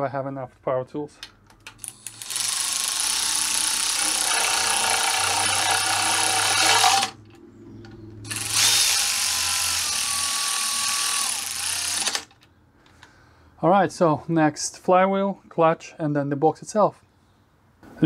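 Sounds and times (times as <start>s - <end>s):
power ratchet running bolts: 1.8s - 7.2s, 8.3s - 12.3s.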